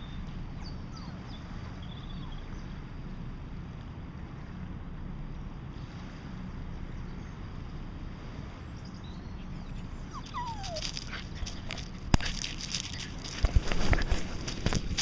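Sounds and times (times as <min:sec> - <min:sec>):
dog whining: 0:09.4 - 0:11.9
wind noise: 0:09.5 - 0:15.0
fur rubbing against camera: 0:11.6 - 0:15.0.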